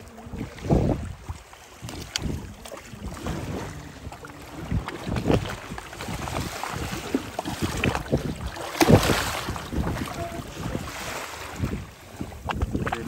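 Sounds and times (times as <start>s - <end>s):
water sloshing against boat hull: 0.0s - 13.0s
loud splash: 4.5s - 11.8s.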